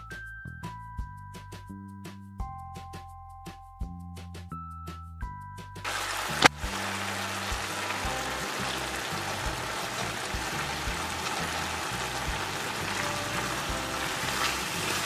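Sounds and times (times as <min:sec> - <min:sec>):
background music: 0:00.0 - 0:15.0
carrots simmering in milk: 0:05.9 - 0:15.0.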